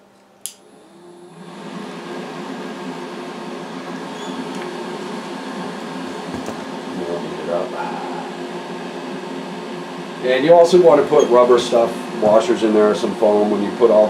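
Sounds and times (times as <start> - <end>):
duct fan whirring hum: 0.0 - 14.0
switch clicking: 0.4 - 0.6.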